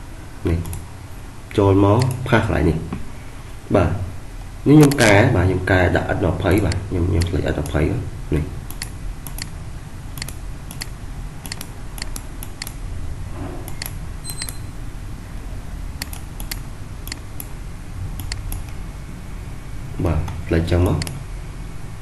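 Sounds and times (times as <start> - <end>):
low steady hum: 0.0 - 22.0
computer mouse clicking: 0.6 - 0.8, 4.8 - 5.2, 8.7 - 9.5, 10.2 - 12.8, 13.6 - 14.6, 16.0 - 17.5, 18.2 - 18.8.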